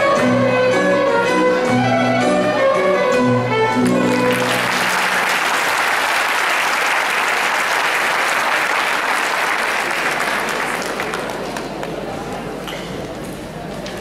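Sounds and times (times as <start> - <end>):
audience applauding: 3.8 - 12.2.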